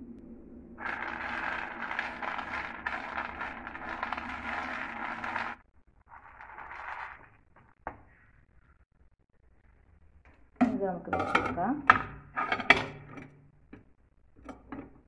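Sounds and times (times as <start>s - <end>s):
peanuts rattling on a plate: 0.8s - 5.6s.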